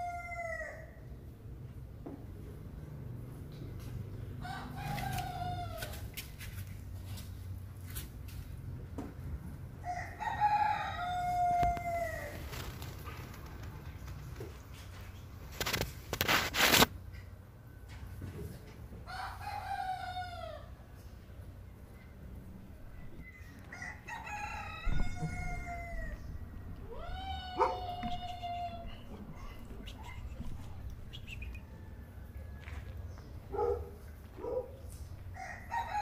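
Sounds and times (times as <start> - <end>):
kitten meowing: 26.9 - 30.6.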